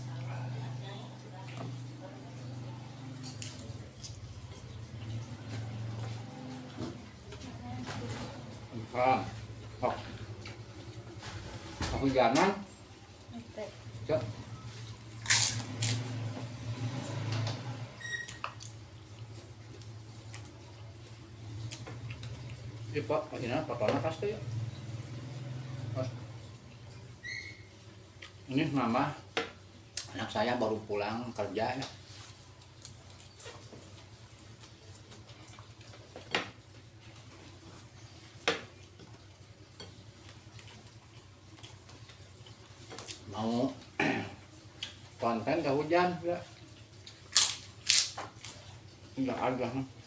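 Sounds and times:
chewing: 0.0s - 7.4s, 18.2s - 22.9s, 24.6s - 28.5s, 31.8s - 45.2s, 46.4s - 49.2s
person eating rice by hand: 14.8s - 16.1s, 31.8s - 45.2s, 46.5s - 49.2s.

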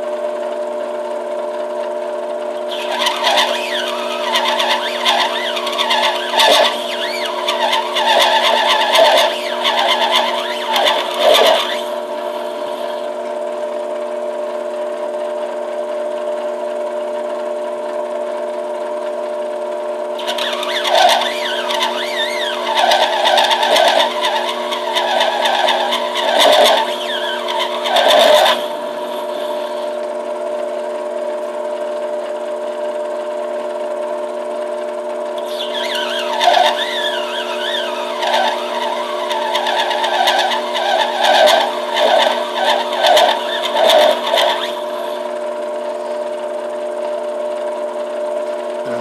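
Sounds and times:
metal lathe whining: 2.4s - 16.1s, 20.0s - 49.0s
tool cutting acrylic: 2.6s - 13.2s, 20.2s - 30.1s, 35.4s - 46.2s.

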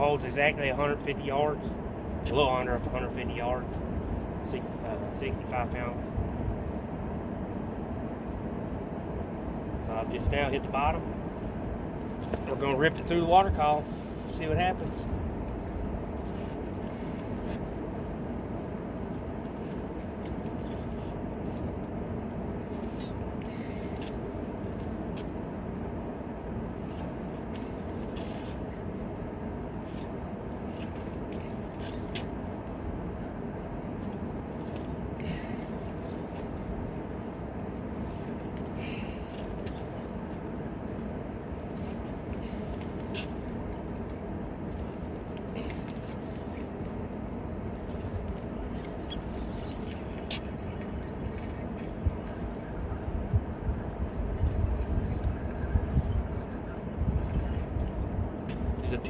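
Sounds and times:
steady low outdoor rumble: 0.0s - 59.0s.

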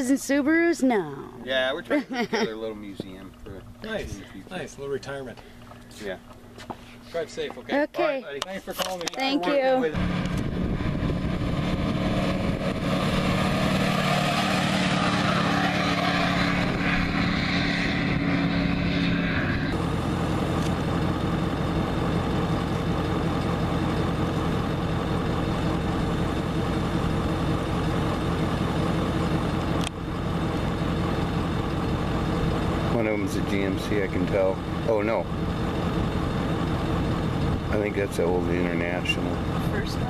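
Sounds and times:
road and engine drone inside vehicle: 8.9s - 40.0s
pickup truck driving off: 10.0s - 40.0s.

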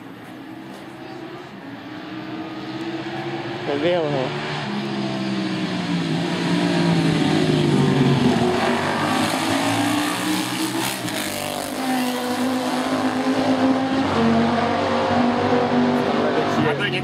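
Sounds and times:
racing motorcycles passing: 0.0s - 17.0s.

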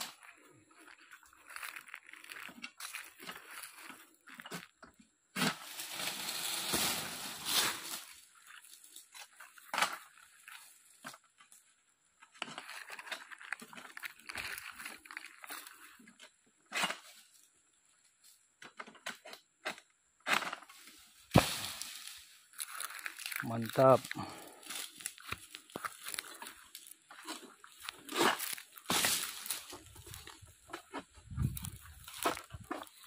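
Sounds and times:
sickle scraping and tearing stalks: 5.4s - 11.0s, 12.4s - 16.1s, 20.4s - 33.0s
fronds rustling: 5.5s - 9.0s, 20.8s - 33.0s
sharp crack: 21.3s - 22.0s.

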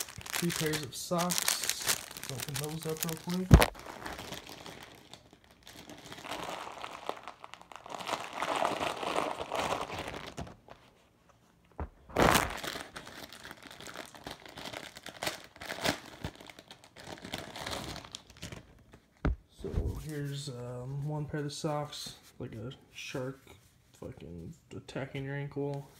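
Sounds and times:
plastic packaging crinkling: 0.0s - 10.9s, 11.8s - 19.1s.

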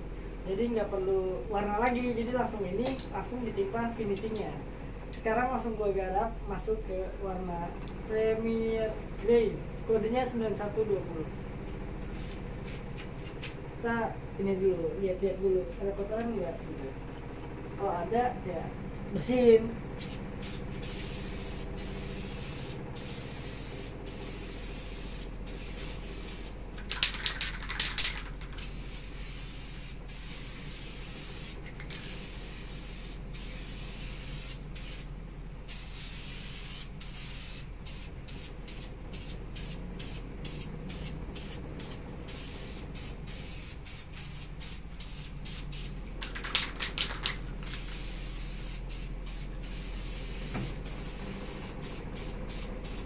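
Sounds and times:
aerosol spray can hissing: 20.0s - 35.1s, 35.7s - 53.0s.

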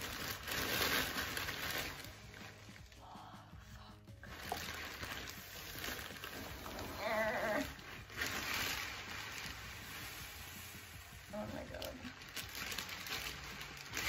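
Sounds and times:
beanbag beads pouring and rustling: 0.0s - 3.0s, 4.2s - 14.0s
plastic bag crinkling: 0.0s - 3.0s, 4.2s - 14.0s.

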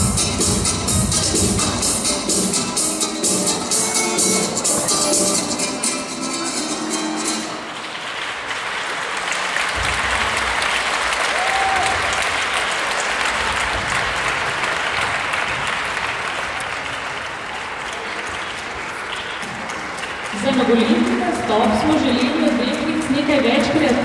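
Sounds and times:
audience applauding: 7.5s - 24.0s.

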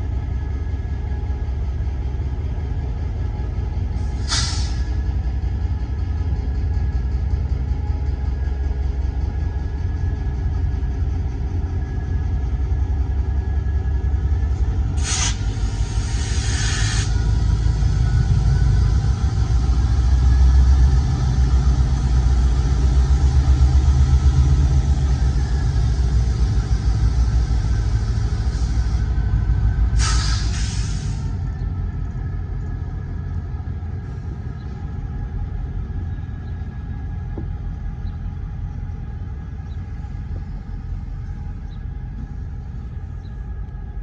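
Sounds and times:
diesel locomotive rumbling past: 0.0s - 44.0s
air hissing burst: 4.2s - 4.8s, 15.0s - 17.2s, 30.0s - 31.3s.

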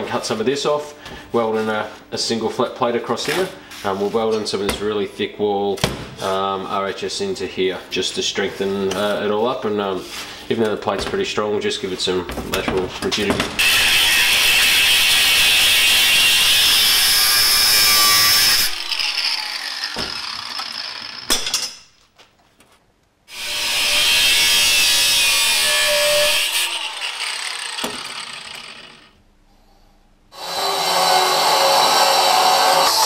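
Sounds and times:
angle grinder cutting steel: 13.6s - 21.3s, 23.3s - 29.2s, 30.3s - 33.0s.

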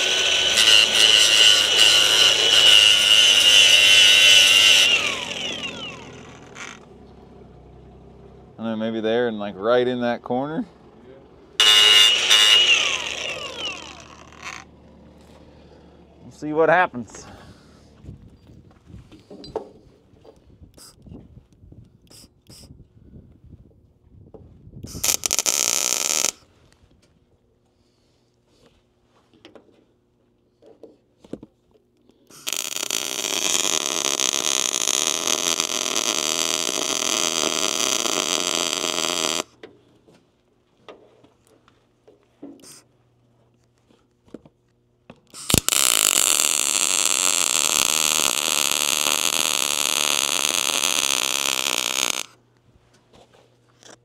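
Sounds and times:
welder arc crackling: 0.0s - 6.8s, 11.6s - 14.7s, 24.9s - 26.4s, 32.3s - 39.5s, 45.4s - 52.4s.

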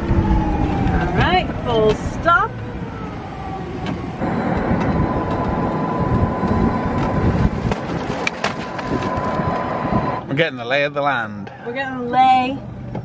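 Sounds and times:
wind on microphone: 0.0s - 10.3s
tyres rumbling on road: 0.0s - 13.0s
high electric whine: 4.2s - 10.3s.

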